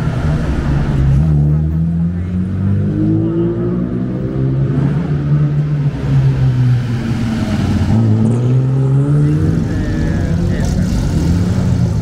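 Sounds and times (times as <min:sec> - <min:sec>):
car engines running at low revs: 0:09.2 - 0:12.0.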